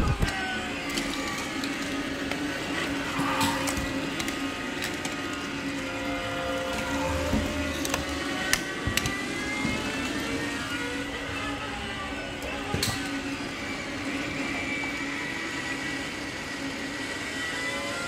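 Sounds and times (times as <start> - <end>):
mechanical whir with drifting tones: 0.0 - 18.0.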